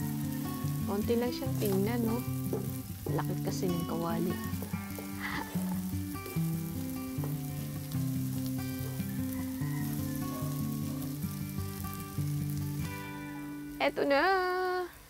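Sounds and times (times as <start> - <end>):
slow background melody: 0.0 - 14.3
food sizzling in a wok: 0.0 - 15.0
wooden spatula tapping and scraping: 1.4 - 6.4.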